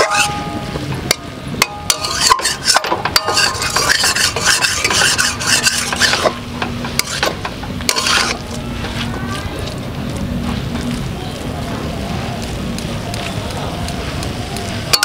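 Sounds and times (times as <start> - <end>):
metal spatula scraping and knocking pan: 0.0 - 9.0
food sizzling in pan: 0.0 - 15.0.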